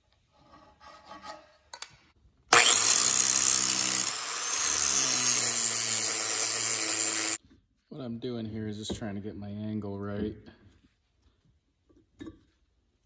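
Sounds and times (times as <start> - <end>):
angle grinder grinding steel: 2.5 - 7.4.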